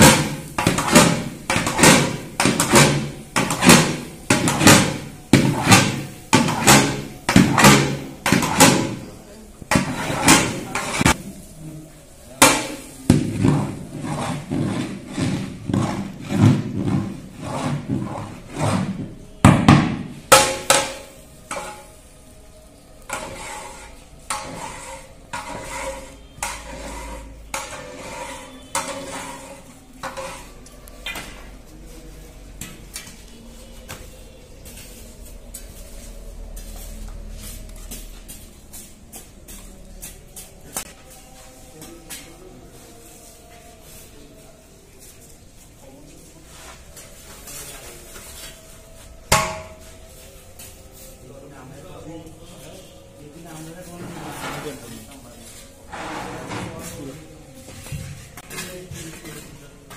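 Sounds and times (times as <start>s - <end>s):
metal spatula scraping metal pot: 0.0s - 11.4s, 12.4s - 19.2s, 20.3s - 22.0s, 23.0s - 31.3s, 54.0s - 55.1s.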